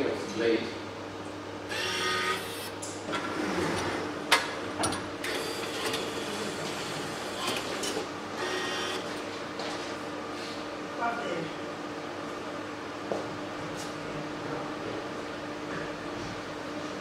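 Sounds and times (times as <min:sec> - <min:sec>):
machine humming: 0:00.7 - 0:09.6.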